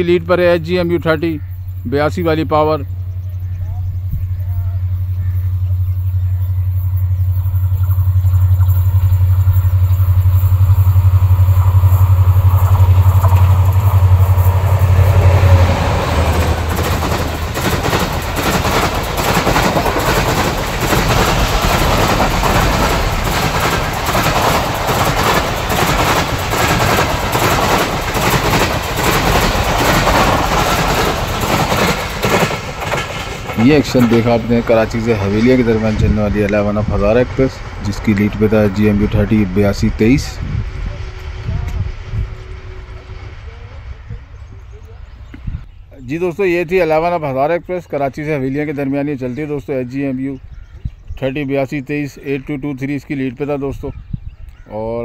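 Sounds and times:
locomotive engine drone: 0.0 - 49.6
train wheels clattering: 5.7 - 45.5.

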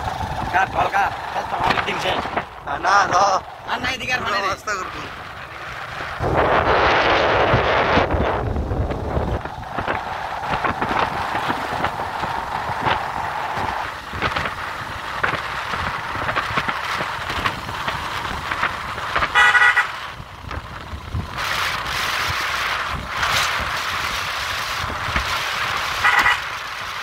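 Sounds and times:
wind and motorcycle road noise: 0.0 - 27.0
vehicle horn beep: 19.4 - 19.9, 26.0 - 26.4.

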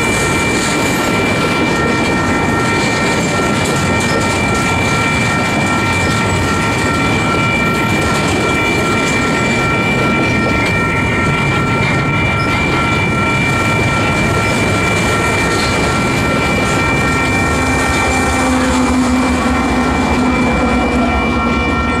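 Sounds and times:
diesel locomotive engine drone: 0.0 - 22.0
high-pitched ringing: 0.0 - 22.0
train wheels rumbling on rails: 0.0 - 22.0.

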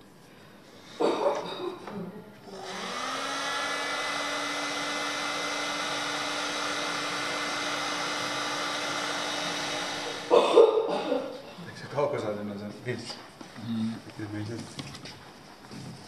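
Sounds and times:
heat gun fan humming: 2.4 - 10.4.

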